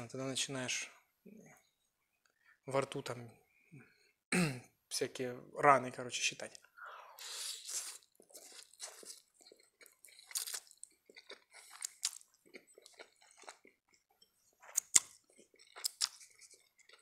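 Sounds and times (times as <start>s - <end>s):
spaghetti slurping and chewing: 7.2s - 17.0s.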